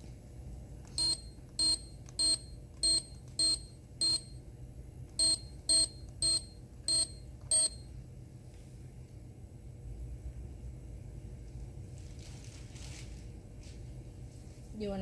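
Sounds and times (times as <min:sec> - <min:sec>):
checkout scanner beeps: 0:00.9 - 0:04.4, 0:05.2 - 0:07.9.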